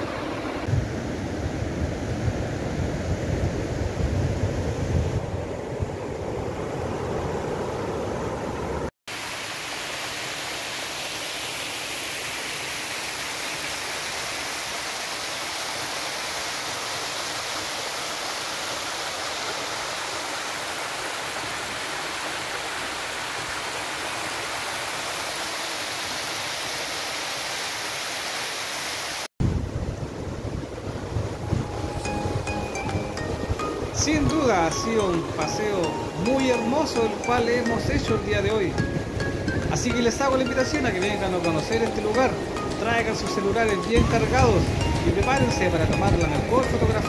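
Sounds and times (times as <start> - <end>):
wind on microphone: 0.0 - 8.9, 29.4 - 34.6, 38.0 - 39.8
river water washing: 0.0 - 47.0
stream rushing over gravel: 9.1 - 29.3, 30.2 - 47.0.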